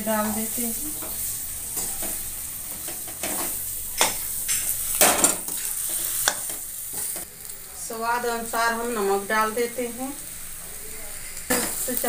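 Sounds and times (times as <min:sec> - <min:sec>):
food sizzling in a pan: 0:00.0 - 0:12.0
spatula scraping and clinking on pan: 0:00.9 - 0:07.2.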